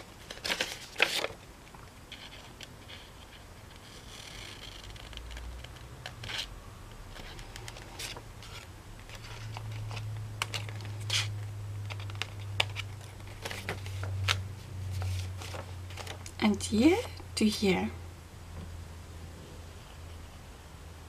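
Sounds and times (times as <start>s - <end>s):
paper rustling: 0.0s - 16.3s
low steady hum: 0.0s - 21.0s.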